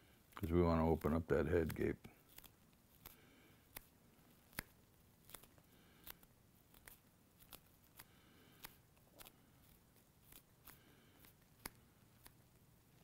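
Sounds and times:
scissors snipping: 0:00.3 - 0:13.0.

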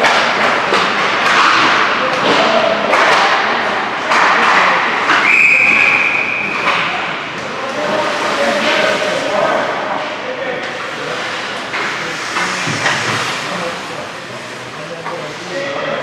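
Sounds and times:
puck or stick thuds: 0:00.0 - 0:15.3
whistle blown: 0:05.2 - 0:06.6
skate blades scraping ice: 0:10.9 - 0:15.7.

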